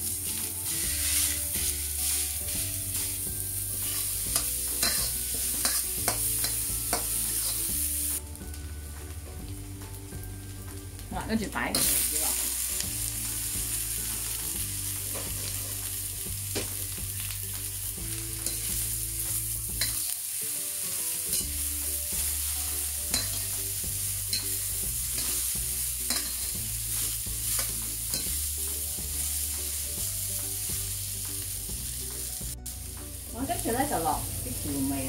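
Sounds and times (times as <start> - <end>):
vegetables sizzling in a wok: 0.0 - 35.0
metal spatula scraping a wok: 0.2 - 3.2, 3.8 - 7.8, 15.1 - 15.9, 18.3 - 18.9, 19.7 - 20.2, 24.3 - 28.4.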